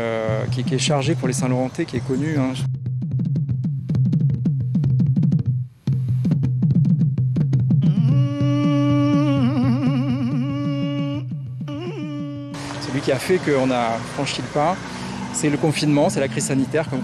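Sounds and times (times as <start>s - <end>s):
falling plucked notes: 7.5s - 13.0s
long wavering held note: 7.8s - 12.9s.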